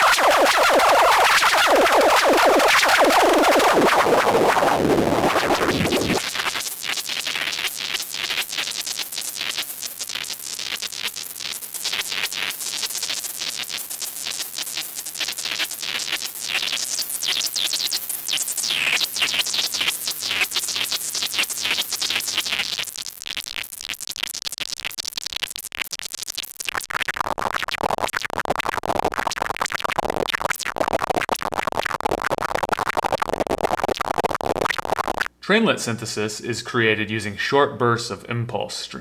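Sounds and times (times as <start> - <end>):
synthesizer blips gliding in pitch: 0.0 - 6.2, 30.0 - 35.3.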